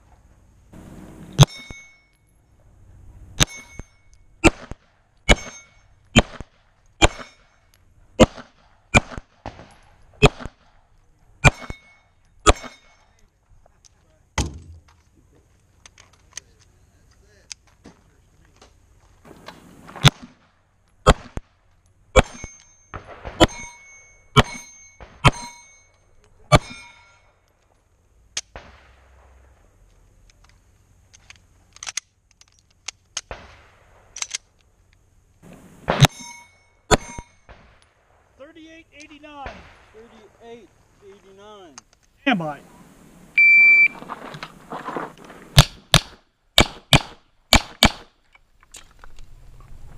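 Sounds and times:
steel plate ringing: 0.8s - 2.4s, 3.4s - 4.4s, 5.3s - 6.1s, 7.0s - 7.7s, 11.4s - 13.1s, 22.2s - 27.4s, 35.9s - 37.5s
pistol shots: 3.4s - 12.9s, 19.2s - 21.5s, 22.1s - 25.6s, 26.5s - 27.0s, 35.4s - 36.3s, 36.9s - 38.1s, 45.6s - 48.2s.

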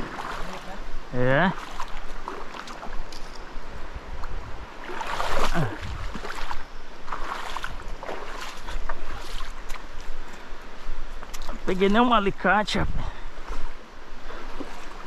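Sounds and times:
wind buffeting microphone: 3.6s - 15.0s.

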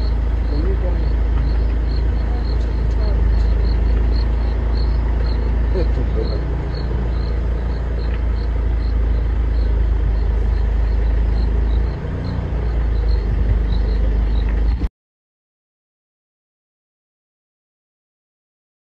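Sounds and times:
insects chirping: 0.0s - 14.9s
vehicle engine idling: 0.0s - 14.9s.

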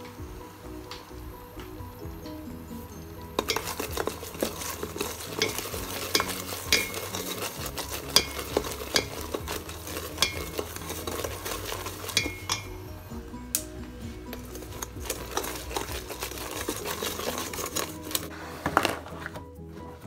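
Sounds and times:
caramel sizzling and bubbling: 0.0s - 19.1s
spoon clicking against pot: 12.1s - 12.8s.

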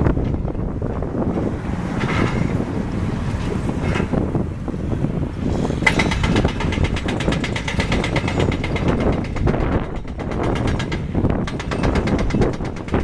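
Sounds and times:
diesel engine rumble: 0.0s - 13.0s
fast even clatter: 5.8s - 13.0s.

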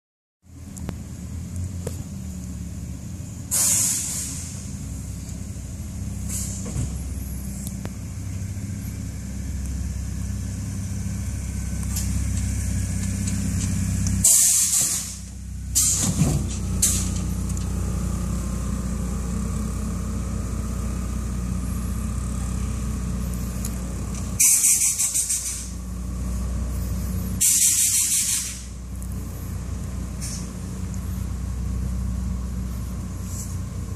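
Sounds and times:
pickup engine running: 0.5s - 33.9s
air suspension hissing: 3.4s - 7.7s, 11.7s - 17.5s, 23.2s - 31.3s.

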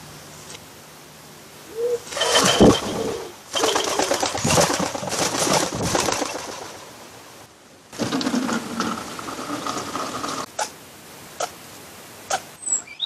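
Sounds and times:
rustling noise with faint hum: 0.0s - 12.6s
pigeon wings flapping: 2.0s - 7.1s.

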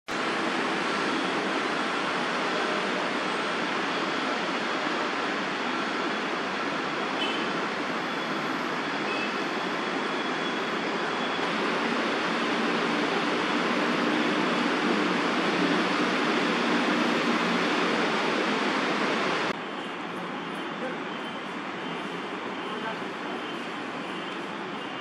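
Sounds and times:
low engine drone: 11.4s - 19.6s.

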